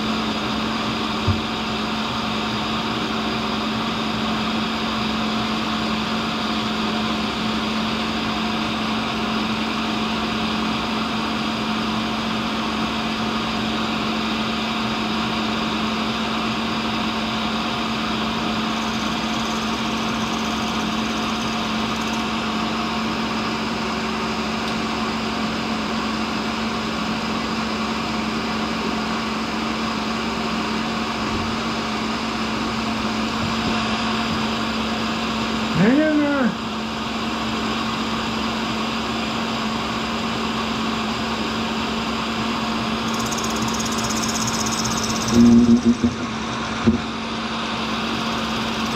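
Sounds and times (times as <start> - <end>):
grinder motor hum: 18.1 - 22.8, 42.8 - 48.9.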